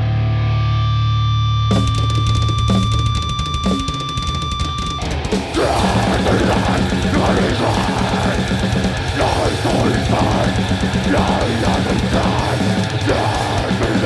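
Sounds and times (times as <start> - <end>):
distorted electric guitars: 0.0 - 14.0
rapid kick drum: 1.7 - 14.0
harsh singing: 5.0 - 14.0.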